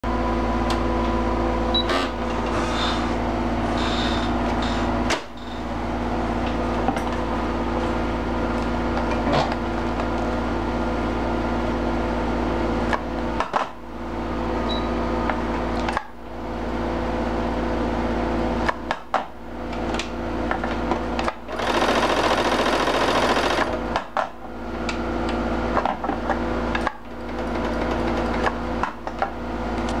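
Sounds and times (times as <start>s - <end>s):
sewing machine running: 21.5s - 23.8s.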